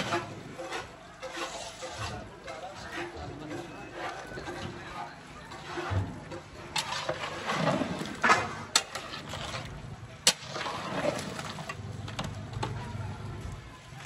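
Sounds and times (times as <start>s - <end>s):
low background hum: 6.1s - 14.0s.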